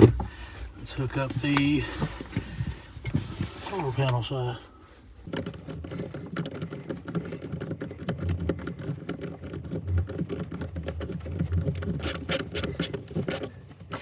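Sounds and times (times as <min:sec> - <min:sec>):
wires clicking and rustling: 0:05.2 - 0:14.0.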